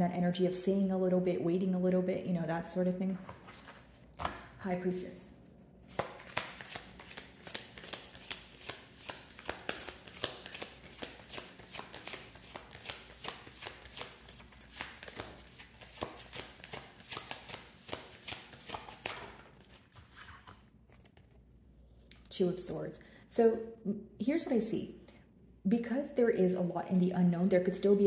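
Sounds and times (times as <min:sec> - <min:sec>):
cards being shuffled: 0:05.8 - 0:21.4.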